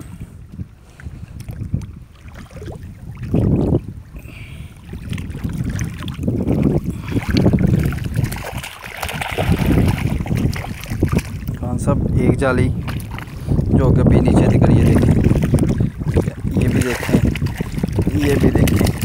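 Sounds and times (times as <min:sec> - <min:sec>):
water sloshing and churning: 0:00.0 - 0:19.0.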